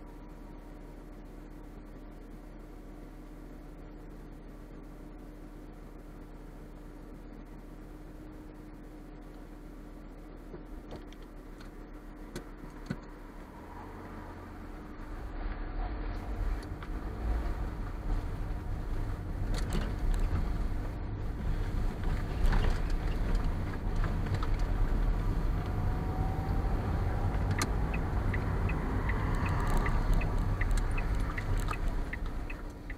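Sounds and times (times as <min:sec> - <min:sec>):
engine and tyre rumble: 0:00.0 - 0:32.9
turn signal ticking: 0:16.6 - 0:32.9.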